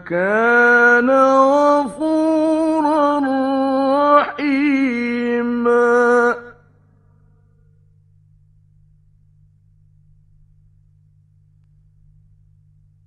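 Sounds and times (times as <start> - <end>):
man chanting melodically: 0.0 - 6.6
faint steady hum: 0.0 - 13.0.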